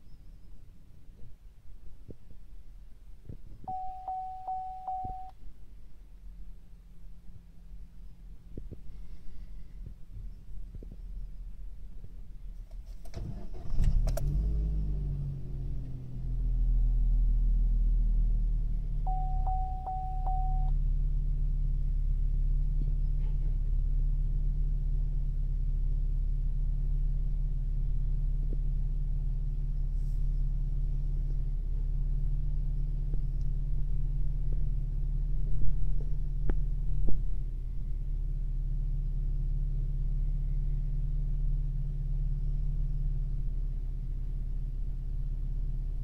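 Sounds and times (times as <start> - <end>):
car engine idling: 2.7 - 46.0.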